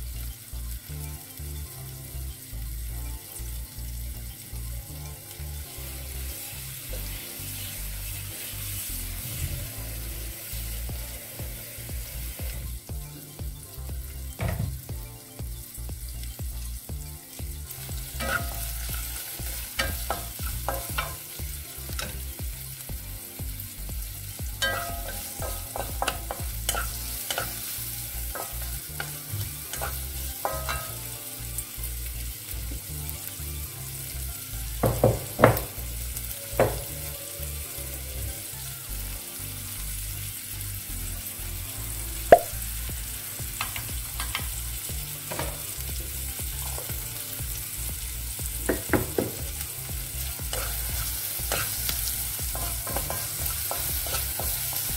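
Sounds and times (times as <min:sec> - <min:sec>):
vegetables sizzling in a frying pan: 0:00.0 - 0:54.9
spatula knocking on pan: 0:14.4 - 0:14.9, 0:19.8 - 0:21.2, 0:24.6 - 0:27.5, 0:34.8 - 0:35.8, 0:36.6 - 0:36.9, 0:45.3 - 0:45.7, 0:48.6 - 0:49.6, 0:52.4 - 0:54.6
spatula stirring and scraping: 0:18.2 - 0:21.2, 0:24.6 - 0:31.0, 0:50.4 - 0:54.9.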